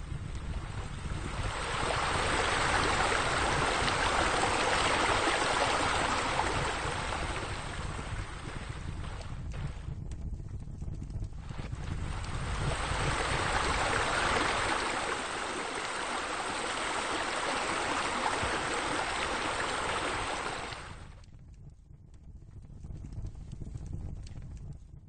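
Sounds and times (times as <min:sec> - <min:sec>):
rushing water: 0:00.0 - 0:09.7, 0:11.7 - 0:21.1
low rumble: 0:00.0 - 0:25.0.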